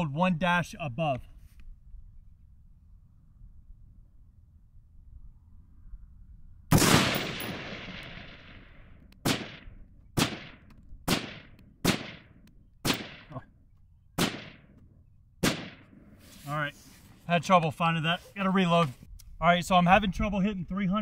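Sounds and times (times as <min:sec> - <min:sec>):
rifle shots with echo: 0:06.7 - 0:13.4, 0:14.2 - 0:14.8, 0:15.4 - 0:16.0.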